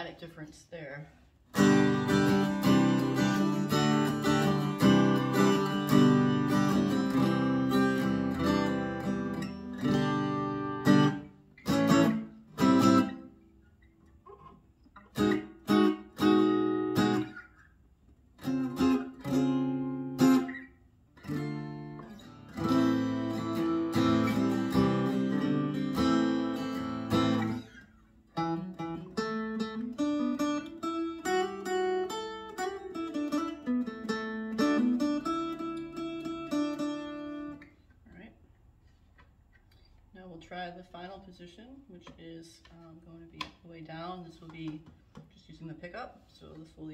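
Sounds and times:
guitar strumming: 1.5 - 37.8.

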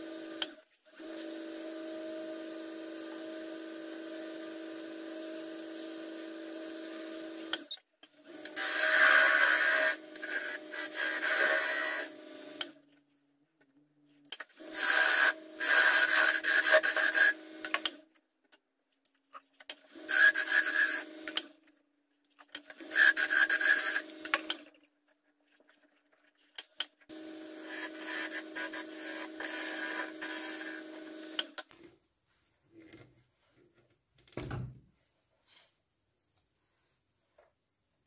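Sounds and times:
wood lathe hum: 8.3 - 12.8, 14.6 - 18.0, 20.0 - 21.4, 22.8 - 24.6, 27.1 - 31.6.

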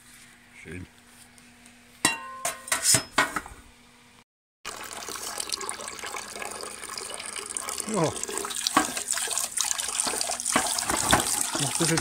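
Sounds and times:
tap water running into pan: 4.7 - 12.0
frying pan clanking against sink: 10.0 - 12.0.

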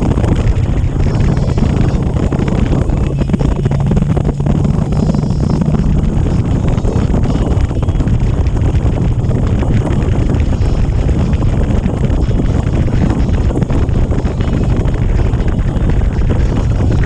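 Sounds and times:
motorcycle engine humming: 0.0 - 17.0
wind buffeting microphone: 0.0 - 17.0.

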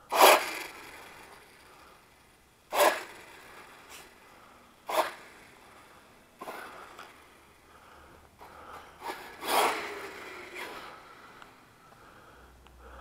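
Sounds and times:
radio-controlled car accelerating: 0.1 - 1.6, 2.7 - 4.2, 4.8 - 5.7, 6.4 - 7.2, 9.0 - 11.6.

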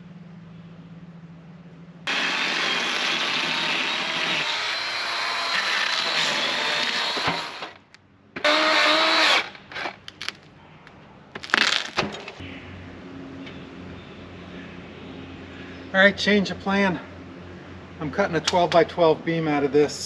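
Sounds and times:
sawmill motor running: 2.1 - 7.8, 8.4 - 10.0.

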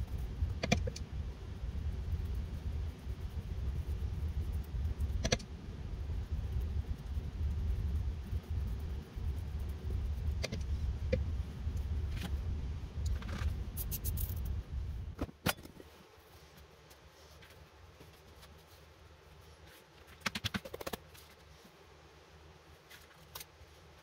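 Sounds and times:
low rumble: 0.0 - 15.2.

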